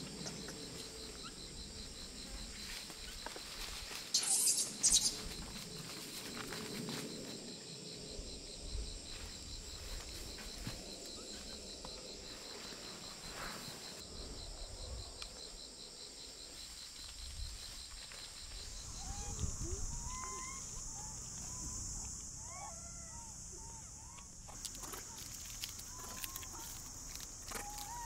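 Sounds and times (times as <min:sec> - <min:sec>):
high insect drone: 0:00.0 - 0:28.0
insects trilling: 0:00.0 - 0:28.0.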